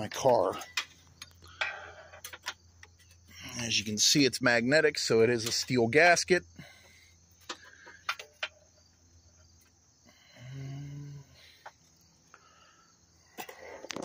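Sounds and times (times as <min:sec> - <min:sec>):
insect chirring: 0:00.6 - 0:14.0.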